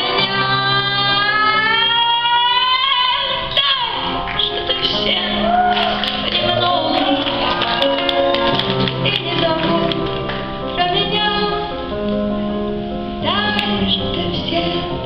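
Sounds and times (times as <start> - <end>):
woman singing a slow song: 0.0 - 5.4, 9.0 - 11.8, 13.2 - 15.0
piano accompaniment: 0.0 - 15.0.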